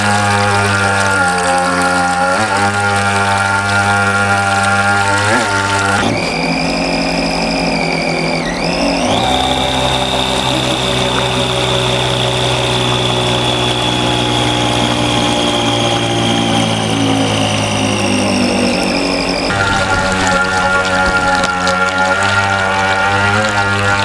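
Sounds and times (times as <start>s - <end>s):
model boat motor whining: 0.0s - 24.0s
rush of spray and wake: 8.9s - 24.0s.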